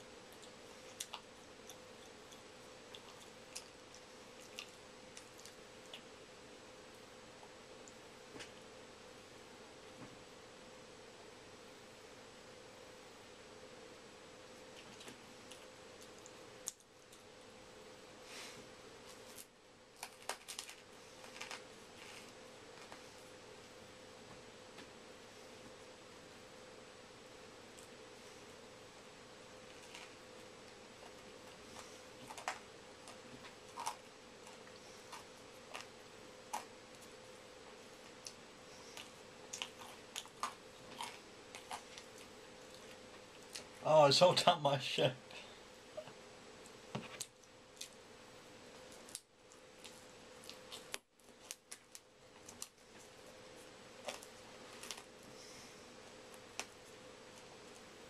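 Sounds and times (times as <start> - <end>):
steady low hum: 0.0 - 58.0
chewing crunches: 0.3 - 6.1, 31.8 - 37.1, 38.2 - 43.8.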